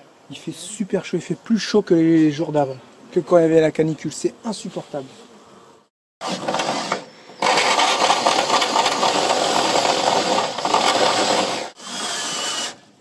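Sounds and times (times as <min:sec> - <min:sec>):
hole saw grinding into sheet metal: 0:06.2 - 0:12.8.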